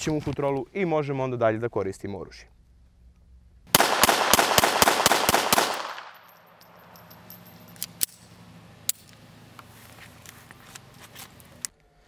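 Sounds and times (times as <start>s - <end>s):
pistol shots: 3.7s - 7.0s.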